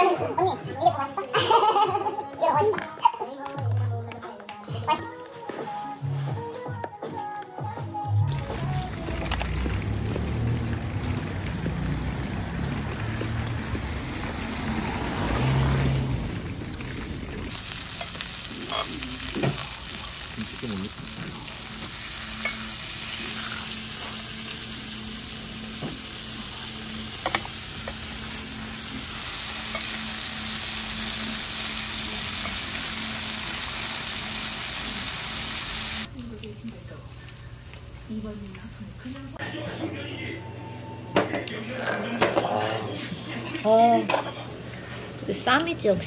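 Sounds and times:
low outdoor rumble: 8.7 - 18.6
pork sizzling on a grill pan: 17.5 - 38.8.

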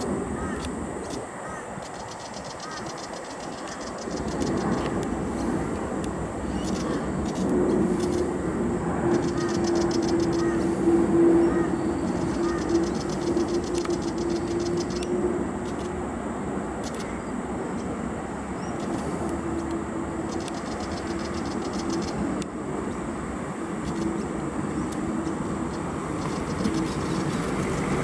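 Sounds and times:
engine rumble with low hum: 18.6 - 28.0.

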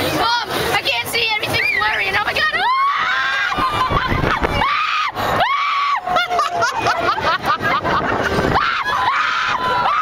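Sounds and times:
people yelling: 1.5 - 7.3, 8.4 - 10.0
people screaming on a ride: 1.5 - 10.0.

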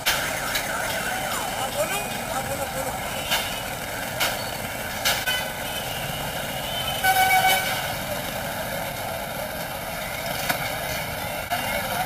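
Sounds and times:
busy street noise: 0.0 - 12.0
vehicle horn honk: 5.3 - 7.9.

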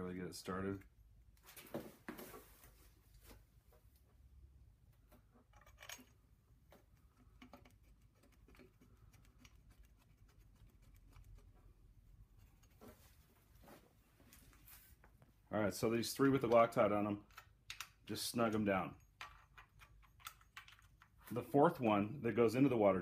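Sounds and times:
metallic clicks and taps: 17.3 - 18.0.

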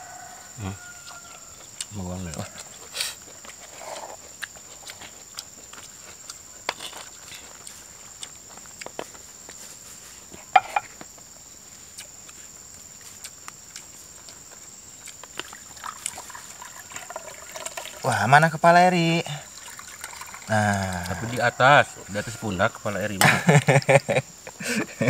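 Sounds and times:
high insect buzz: 0.0 - 25.0
clicks and knocks of eating: 1.0 - 9.6, 11.9 - 18.1.

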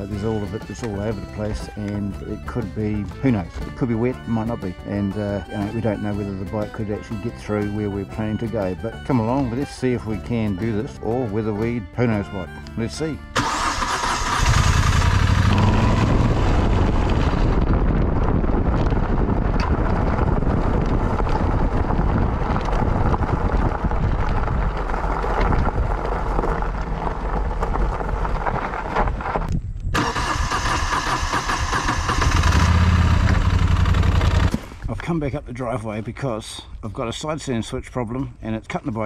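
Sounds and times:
wind and road noise: 0.0 - 39.0
motorcycle engine running: 13.4 - 28.3, 31.4 - 34.7.

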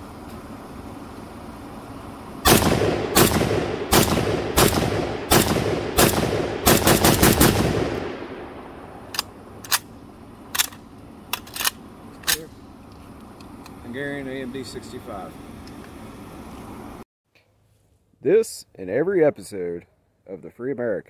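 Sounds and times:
rifle shots with echo: 2.4 - 9.1.

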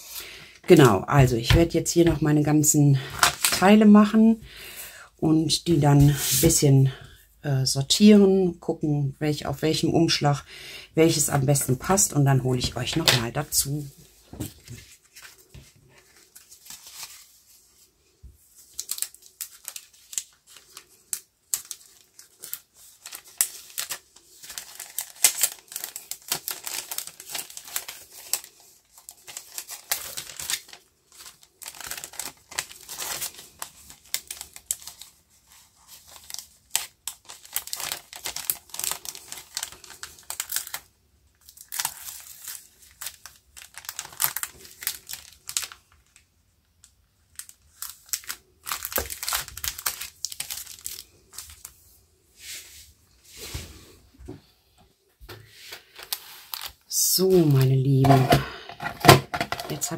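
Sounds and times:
plastic card sleeves crinkling: 2.9 - 3.8, 11.6 - 46.2, 46.8 - 52.6, 55.3 - 59.9.

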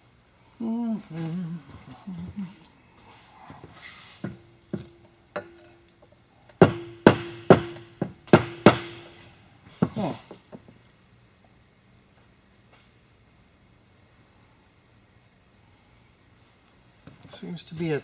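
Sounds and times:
tool tapping on metal: 4.2 - 10.7.

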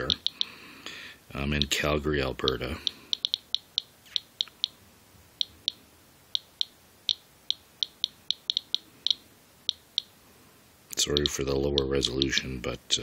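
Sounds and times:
geiger counter beeping: 0.0 - 0.6, 2.4 - 4.8, 5.4 - 10.2, 11.1 - 12.4.

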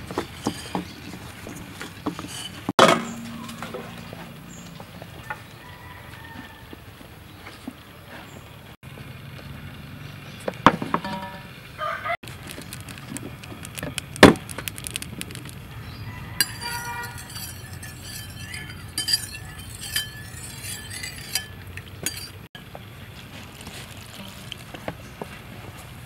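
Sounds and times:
spoon scraping through flour: 0.0 - 3.3, 16.4 - 22.5
spoon clinking in ceramic bowl: 16.4 - 22.4.

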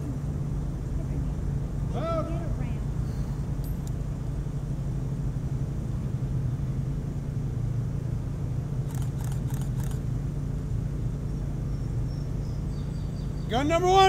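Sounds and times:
low engine-like rumble: 0.0 - 14.0.

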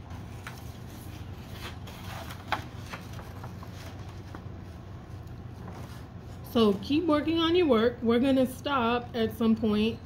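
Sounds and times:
paper rustling: 0.0 - 6.4
low room hum: 0.0 - 10.0.

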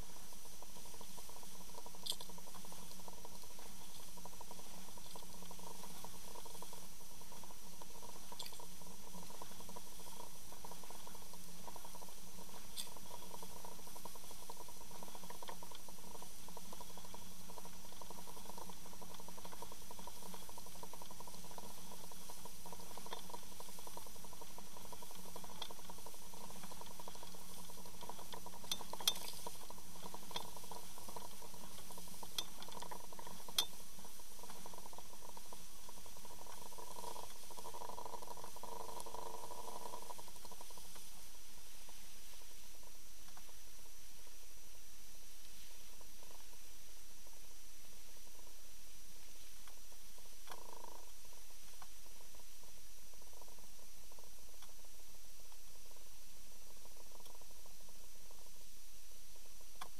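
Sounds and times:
sharp ticks: 0.0 - 41.3
underwater hum: 0.0 - 59.9.

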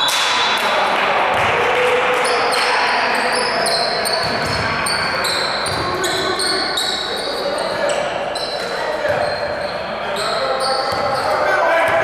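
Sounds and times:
sneakers squeaking on hardwood: 3.2 - 11.4
basketball bouncing: 4.2 - 4.8.

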